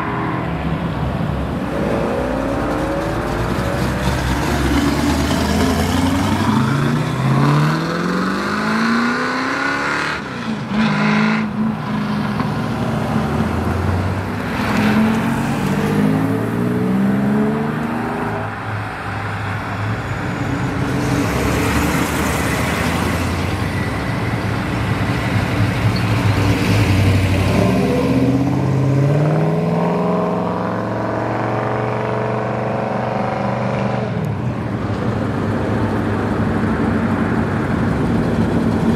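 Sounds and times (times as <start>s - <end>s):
car engines accelerating: 0.0s - 38.9s.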